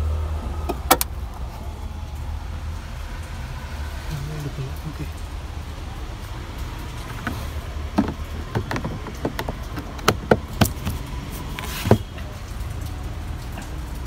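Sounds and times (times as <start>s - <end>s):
plastic panel clicks and taps: 8.0s - 11.0s.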